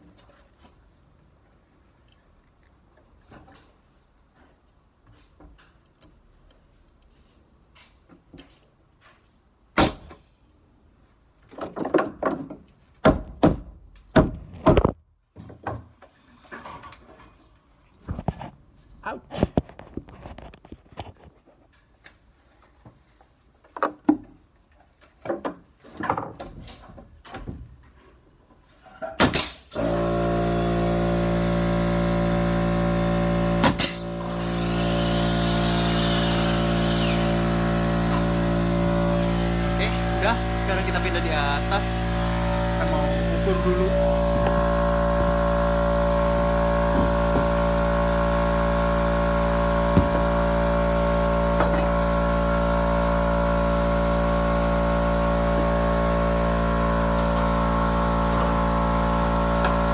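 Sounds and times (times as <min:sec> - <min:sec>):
nail gun firing: 0:09.8 - 0:10.2, 0:29.2 - 0:30.4, 0:33.5 - 0:37.4
wood knocks and handling: 0:11.4 - 0:13.6
air compressor motor drone: 0:29.7 - 0:59.9.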